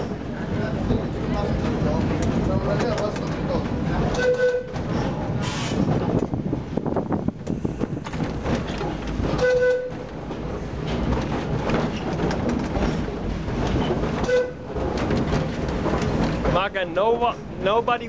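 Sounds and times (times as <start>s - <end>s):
tram rumbling and clattering: 0.0s - 18.0s
tram horn toots: 4.1s - 5.8s, 9.3s - 10.1s, 14.2s - 14.8s.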